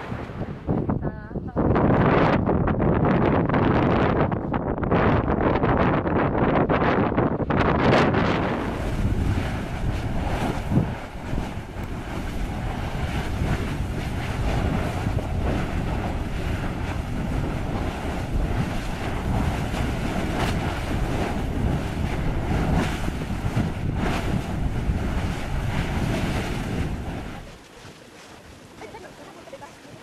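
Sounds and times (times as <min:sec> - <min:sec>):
wind buffeting microphone: 0:00.0 - 0:30.0
lava churning and spattering: 0:07.4 - 0:27.9.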